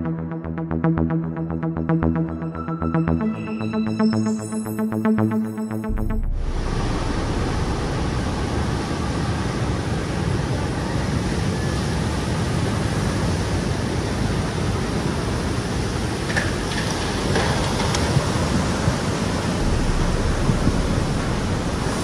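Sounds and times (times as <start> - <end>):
roar of rushing water: 6.5 - 22.0.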